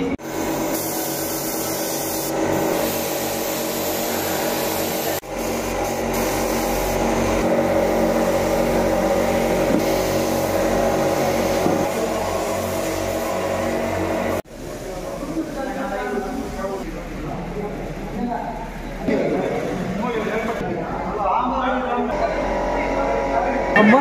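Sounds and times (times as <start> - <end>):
air compressor humming: 0.0 - 21.4, 22.1 - 24.0
airbrush spray hissing: 0.2 - 16.5.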